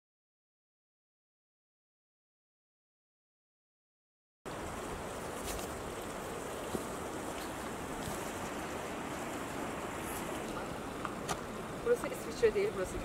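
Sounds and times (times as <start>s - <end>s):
rushing outdoor ambience: 4.5s - 13.0s.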